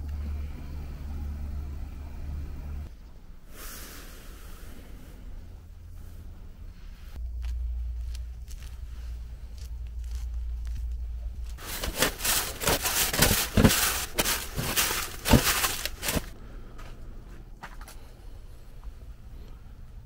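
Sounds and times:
low steady hum: 0.0 - 20.0
plastic bags rustling: 11.4 - 16.4.

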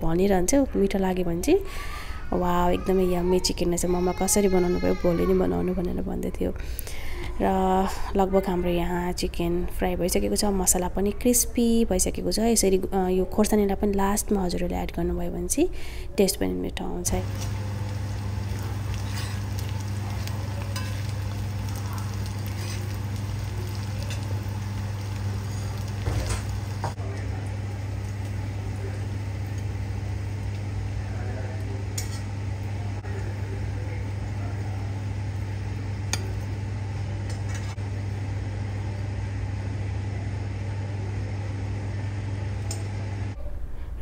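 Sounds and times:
low steady hum: 5.1 - 44.0
chicken sizzling in a pan: 17.2 - 43.3
metal spoon clinking on pan: 20.7 - 21.1.

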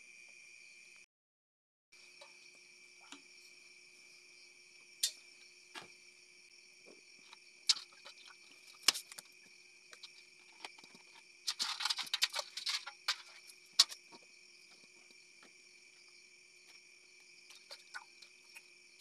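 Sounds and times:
crickets chirring: 0.0 - 1.1, 2.0 - 19.0
crab shells clattering on metal: 10.6 - 14.0.

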